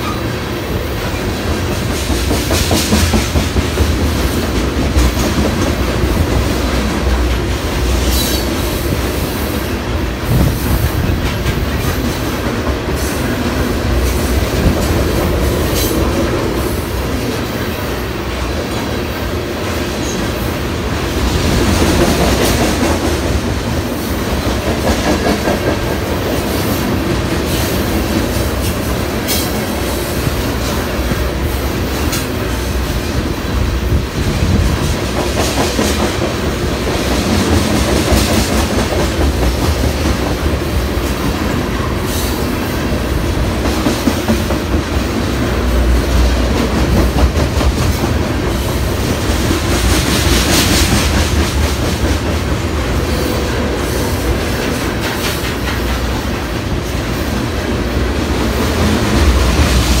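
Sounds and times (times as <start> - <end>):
freight train rumbling past: 0.0 - 60.0
wheels clacking over rail joints: 43.4 - 57.6.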